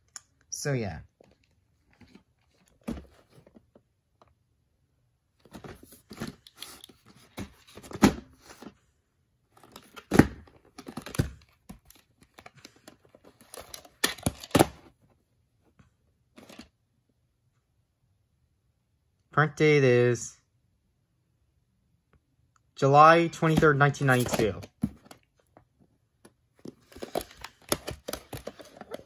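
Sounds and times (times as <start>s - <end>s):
plastic case rustling and scraping: 1.8s - 3.8s, 5.4s - 8.8s, 9.6s - 14.9s, 16.4s - 16.7s, 23.5s - 25.2s, 26.6s - 29.0s.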